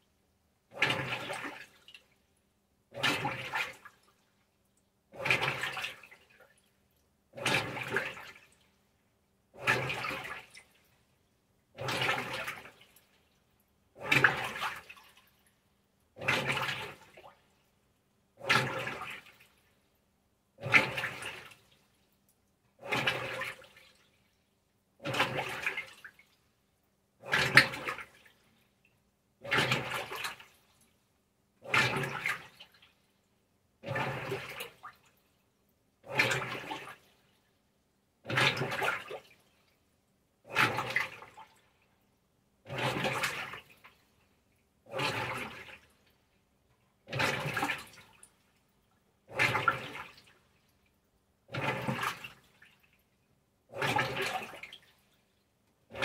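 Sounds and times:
washer churning and sloshing: 0:00.7 - 0:01.9, 0:02.9 - 0:04.2, 0:05.1 - 0:06.6, 0:07.3 - 0:08.6, 0:09.5 - 0:10.8, 0:11.8 - 0:13.1, 0:13.9 - 0:15.4, 0:16.2 - 0:17.4, 0:18.4 - 0:19.6, 0:20.6 - 0:21.7, 0:22.8 - 0:24.1, 0:25.0 - 0:26.3, 0:27.2 - 0:28.5, 0:29.4 - 0:30.6, 0:31.6 - 0:32.9, 0:33.8 - 0:35.0, 0:36.0 - 0:37.1, 0:38.2 - 0:39.4, 0:40.4 - 0:41.7, 0:42.6 - 0:44.0, 0:44.8 - 0:46.1, 0:47.0 - 0:48.4, 0:49.2 - 0:50.5, 0:51.4 - 0:53.0, 0:53.7 - 0:55.1.

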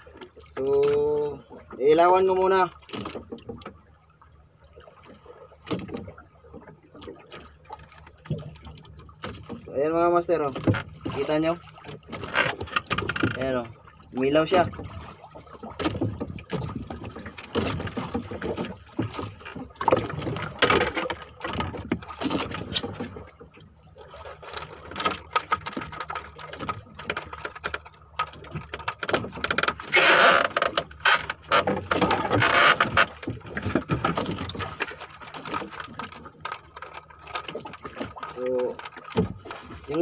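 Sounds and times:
fishing line spool clicking and rattling: 0:12.2 - 0:13.6.

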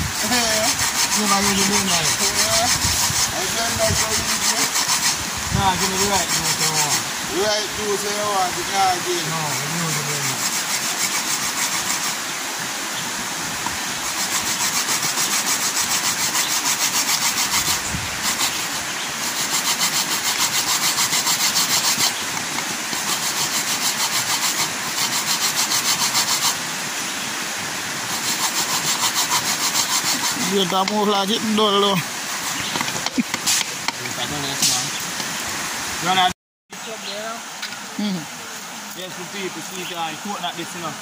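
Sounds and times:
coconut scraped on metal grater: 0:00.0 - 0:07.0, 0:09.0 - 0:12.2, 0:14.0 - 0:26.6, 0:28.1 - 0:31.2.

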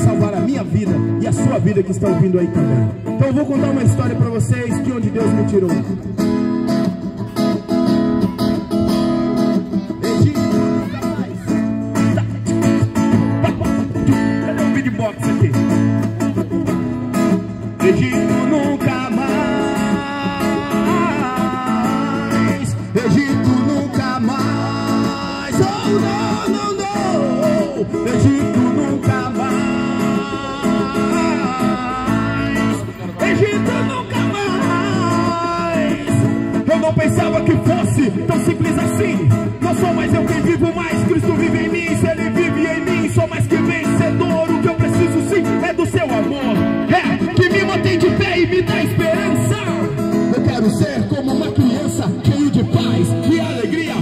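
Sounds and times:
man singing into microphone: 0:00.0 - 0:05.9, 0:09.8 - 0:15.7, 0:17.6 - 0:54.0
strummed acoustic guitar: 0:00.0 - 0:54.0.

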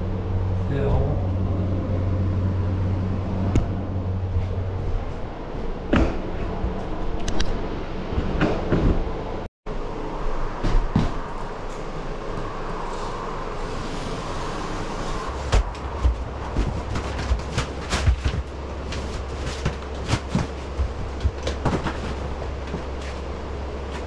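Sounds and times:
steady low rumble: 0:00.0 - 0:24.0
drywall cracking and knocking: 0:15.4 - 0:24.0.

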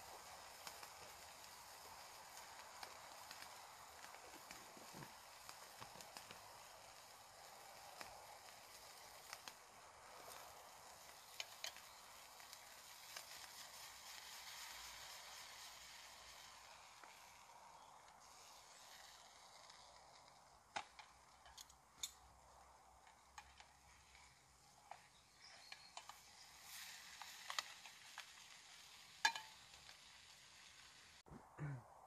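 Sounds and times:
steak sizzling in a frying pan: 0:00.0 - 0:31.2
metal utensil clicking on pan: 0:29.2 - 0:29.8.

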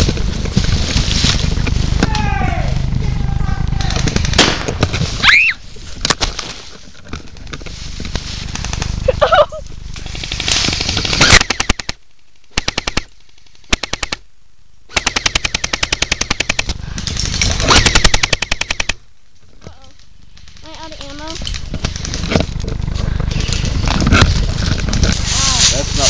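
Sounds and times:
airsoft gun full-auto bursts: 0:10.1 - 0:14.2, 0:14.9 - 0:16.7.

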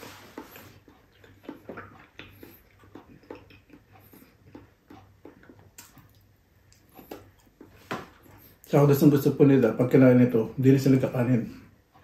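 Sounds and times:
person chewing food: 0:00.0 - 0:08.7.

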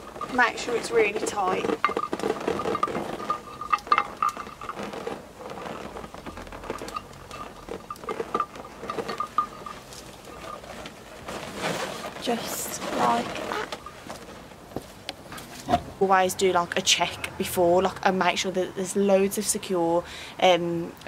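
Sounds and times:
balloons squeaking and rubbing: 0:00.0 - 0:14.6.

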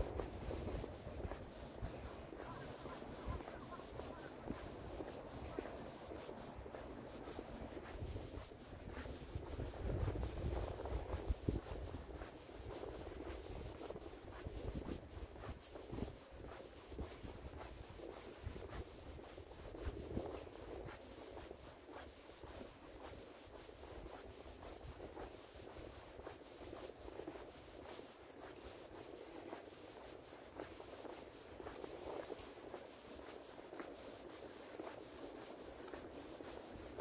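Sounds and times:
footsteps on trail: 0:00.0 - 0:37.0
scratchy rustling: 0:00.0 - 0:37.0
wind rumble: 0:07.2 - 0:12.2.

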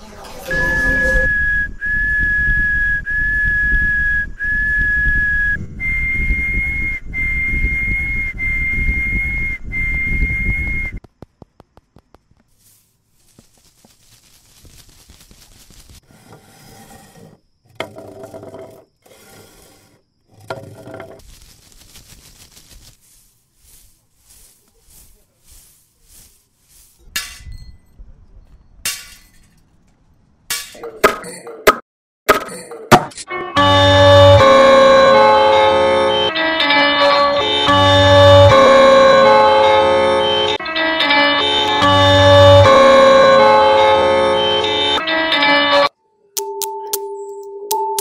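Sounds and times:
high whistle-like tone: 0:00.5 - 0:11.0.

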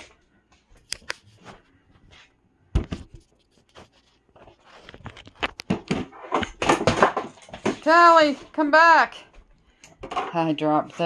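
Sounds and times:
knocks and clatter: 0:05.0 - 0:08.0.

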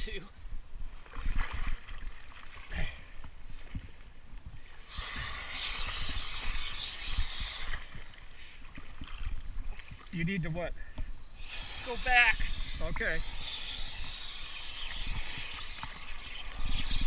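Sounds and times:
water splashing and sloshing: 0:00.9 - 0:04.5, 0:06.0 - 0:10.4
loud splashing hiss: 0:04.8 - 0:08.5, 0:11.3 - 0:17.0.

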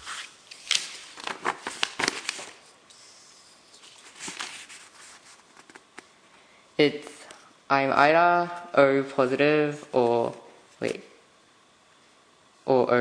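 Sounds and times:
paper leaflet rustling: 0:00.0 - 0:06.0.

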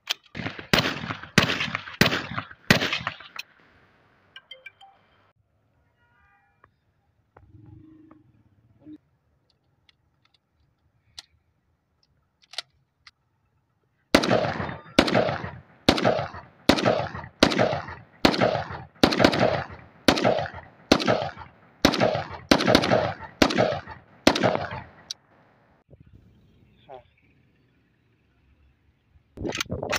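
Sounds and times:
rifle shots with echo: 0:00.3 - 0:03.4, 0:14.1 - 0:25.2
rifle handling clicks: 0:09.5 - 0:11.4, 0:12.0 - 0:13.2.

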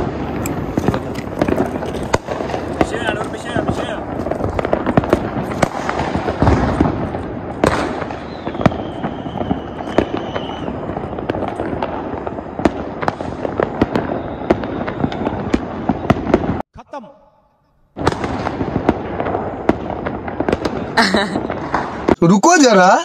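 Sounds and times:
firecrackers banging: 0:00.0 - 0:16.6, 0:17.9 - 0:22.4
thin falling whistle: 0:08.2 - 0:11.2, 0:14.1 - 0:15.4.

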